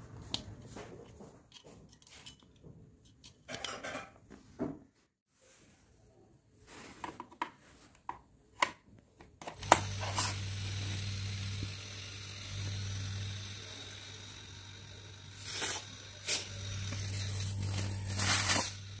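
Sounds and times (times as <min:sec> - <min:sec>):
refrigerator compressor humming: 0:09.7 - 0:19.0.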